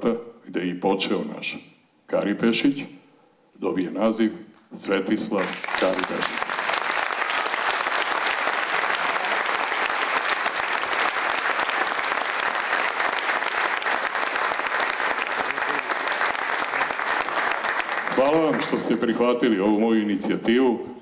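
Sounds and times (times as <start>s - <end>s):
large audience applauding: 5.4s - 19.0s.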